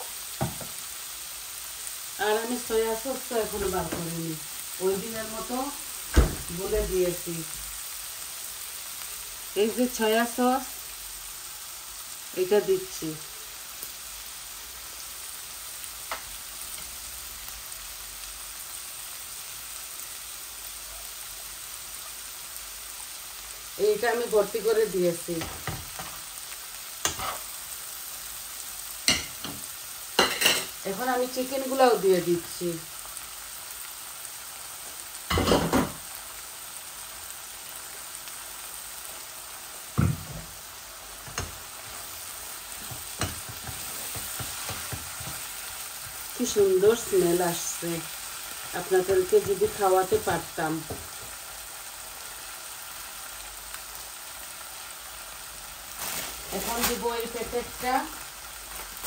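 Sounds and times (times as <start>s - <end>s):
vegetables sizzling in a frying pan: 0.0s - 59.0s
wooden spatula knocking on pan: 40.0s - 40.5s.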